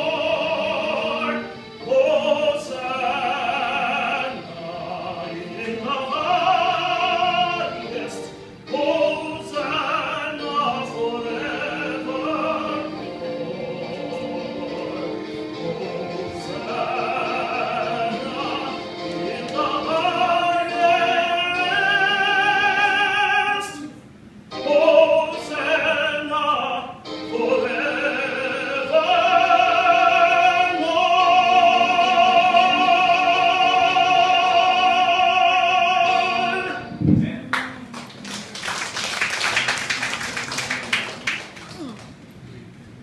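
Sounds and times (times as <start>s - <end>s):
man singing with vibrato: 0.0s - 37.5s
audience clapping: 37.5s - 42.3s.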